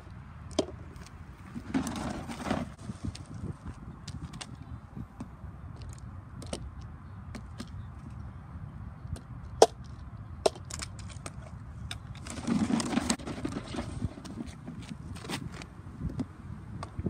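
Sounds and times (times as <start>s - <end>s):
rough scraping noise: 1.4s - 3.5s, 12.2s - 15.6s.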